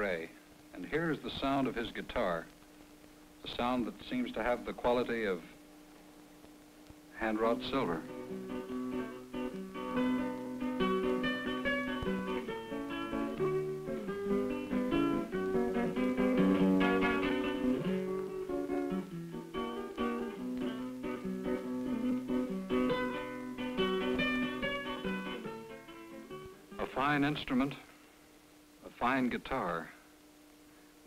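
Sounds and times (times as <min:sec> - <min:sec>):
solo acoustic guitar: 0:07.1 - 0:27.7.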